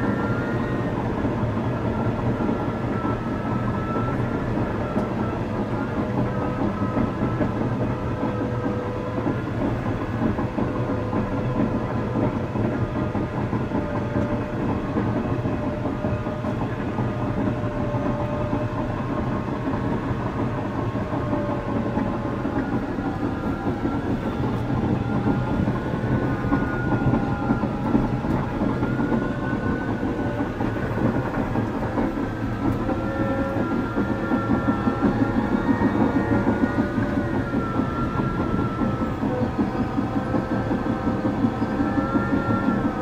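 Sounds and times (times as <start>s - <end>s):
bulldozer engine drone: 0.0s - 43.0s
steel tracks clattering: 0.0s - 43.0s
thin wavering whines: 15.2s - 43.0s.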